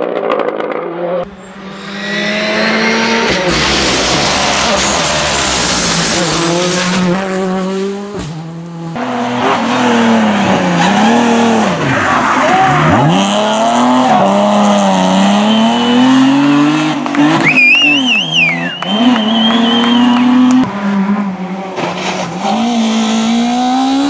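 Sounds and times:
rally car engine at full throttle: 0.0s - 24.0s
car engine revving: 0.9s - 24.0s.

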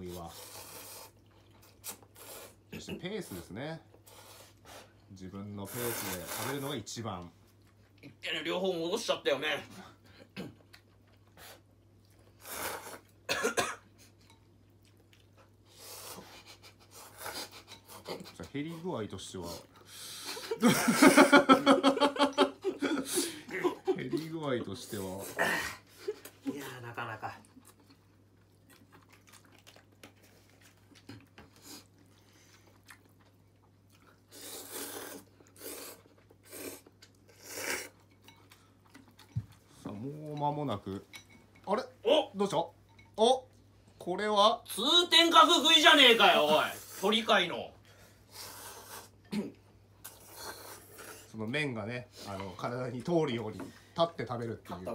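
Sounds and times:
people slurping noodles: 0.1s - 2.7s, 5.7s - 6.8s, 12.3s - 13.2s, 34.1s - 38.1s, 48.3s - 49.2s, 50.0s - 51.4s
noodles being slurped: 5.7s - 6.8s, 34.0s - 38.0s.

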